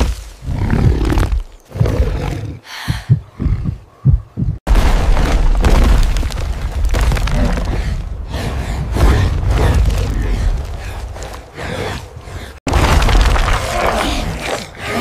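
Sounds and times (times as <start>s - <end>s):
deep irregular thumps: 2.8s - 7.3s.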